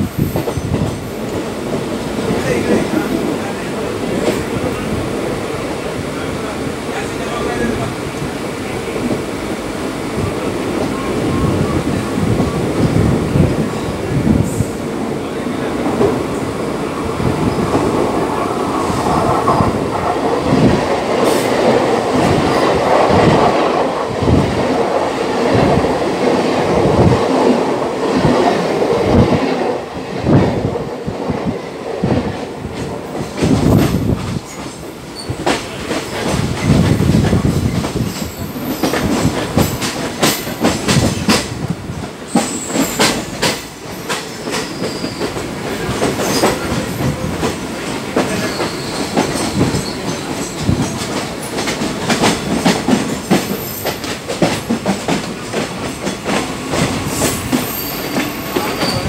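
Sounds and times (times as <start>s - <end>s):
clickety-clack over rail joints: 0.0s - 8.3s, 17.1s - 59.0s
train wheels rumbling: 0.0s - 59.0s
wheel squeals: 44.5s - 45.4s.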